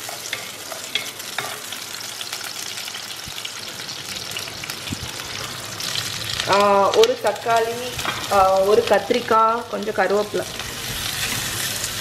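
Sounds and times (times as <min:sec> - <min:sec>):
shallots and garlic sizzling in oil: 0:00.0 - 0:12.0.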